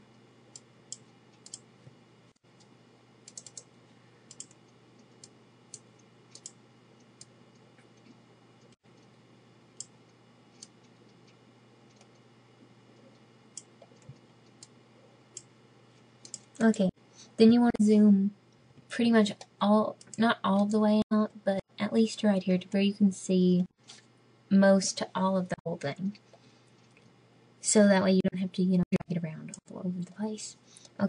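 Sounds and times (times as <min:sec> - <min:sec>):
faint low hum: 0:00.0 - 0:31.0
computer mouse clicking: 0:00.5 - 0:01.7, 0:02.6 - 0:09.2, 0:09.8 - 0:12.3, 0:13.0 - 0:15.5, 0:16.2 - 0:16.8.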